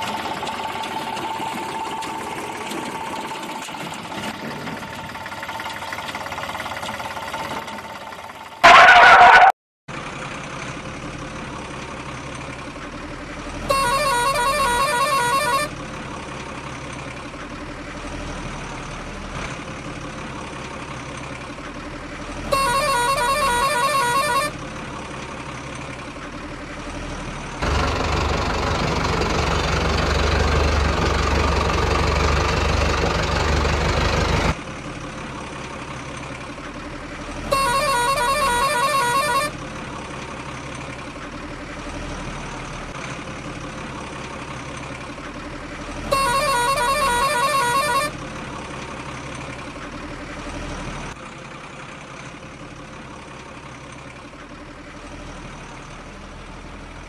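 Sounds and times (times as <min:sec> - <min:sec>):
truck engine idling: 0:00.0 - 0:57.0
truck horn honking: 0:08.6 - 0:09.5, 0:13.6 - 0:15.8, 0:22.4 - 0:24.6, 0:37.4 - 0:39.7, 0:46.0 - 0:48.4.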